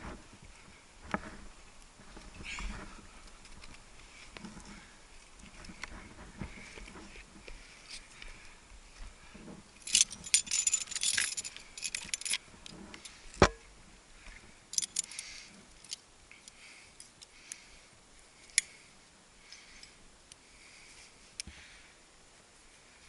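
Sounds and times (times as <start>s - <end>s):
metal climbing gear jangling: 9.8s - 13.2s, 14.7s - 17.3s.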